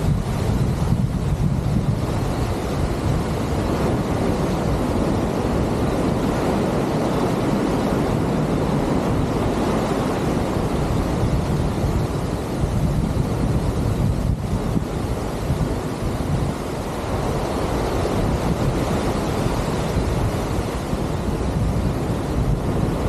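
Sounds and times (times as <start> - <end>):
water rushing along ship hull: 0.0 - 23.0
wind buffeting microphone: 0.0 - 23.0.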